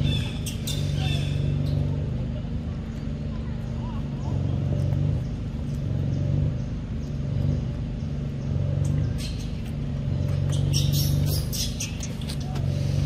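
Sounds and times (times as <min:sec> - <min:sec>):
low engine hum: 0:00.0 - 0:13.0.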